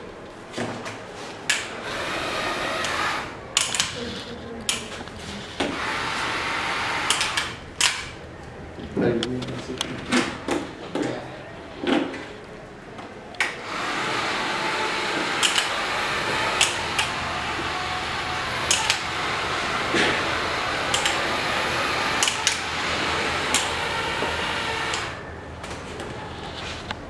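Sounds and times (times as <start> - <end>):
electric gear motors and fan running: 0.0 - 10.9, 13.4 - 27.0
sharp clicks: 2.8 - 6.3, 7.0 - 8.6, 15.2 - 17.2, 17.8 - 19.3, 20.8 - 22.8, 23.5 - 23.8.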